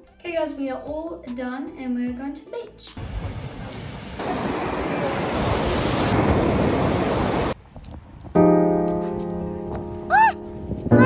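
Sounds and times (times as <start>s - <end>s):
surf washing up beach: 3.0s - 7.6s
piano music: 8.4s - 11.0s.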